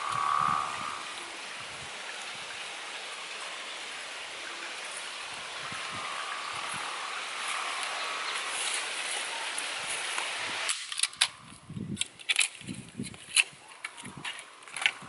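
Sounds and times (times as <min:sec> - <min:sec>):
campfire sizzling and steaming: 0:00.0 - 0:15.0
twigs snapping: 0:10.7 - 0:15.0.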